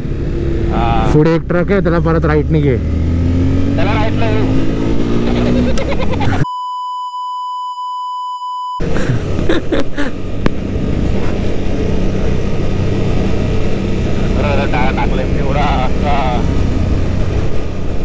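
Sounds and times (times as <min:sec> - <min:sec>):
motorcycle engine: 0:00.0 - 0:06.4, 0:08.8 - 0:18.0
wind: 0:00.0 - 0:06.5, 0:08.8 - 0:18.0
censor bleep: 0:06.4 - 0:08.8.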